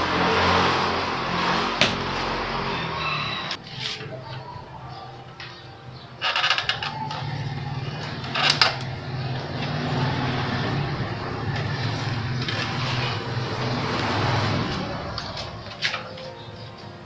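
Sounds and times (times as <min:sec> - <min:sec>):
vehicle engine running: 0:00.0 - 0:03.6, 0:06.6 - 0:16.4
engine starting clicks: 0:06.2 - 0:16.4.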